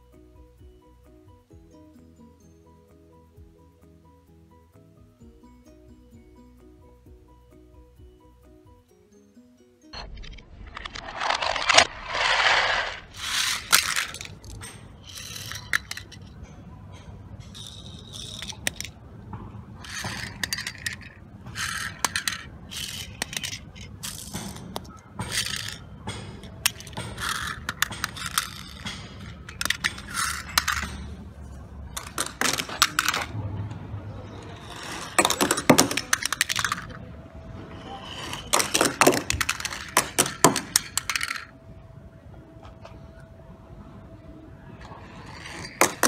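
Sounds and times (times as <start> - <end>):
toy cars clattering metallic clicks: 10.0 - 19.1, 19.8 - 37.0, 37.7 - 41.6, 44.8 - 46.0.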